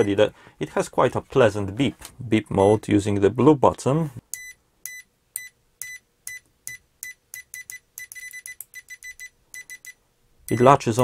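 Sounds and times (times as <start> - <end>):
multimeter short high beeps: 4.3 - 11.0.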